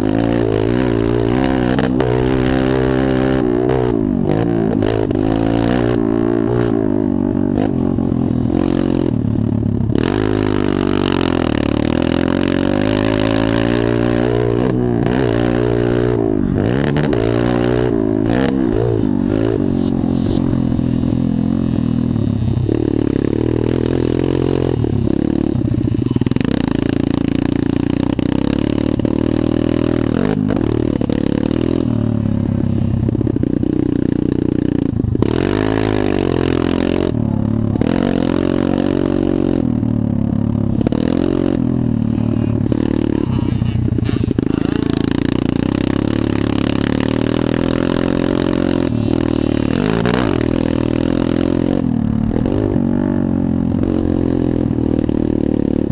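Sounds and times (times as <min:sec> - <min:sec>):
dirt bike engine revving: 0:00.0 - 0:55.9.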